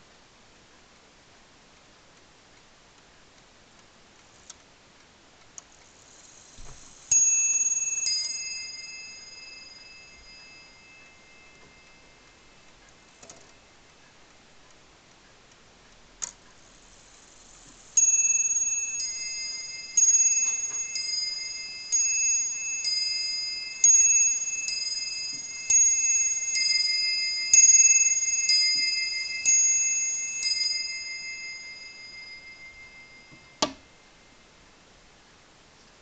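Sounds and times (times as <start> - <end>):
clock striking high and low tones: 5.8 - 14.2, 16.4 - 34.4.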